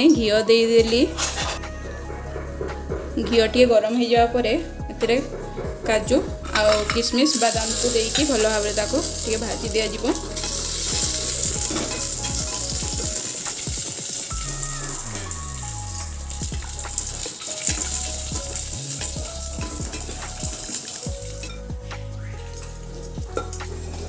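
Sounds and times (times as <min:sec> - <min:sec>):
nuts sizzling in hot fat: 0:07.2 - 0:21.6.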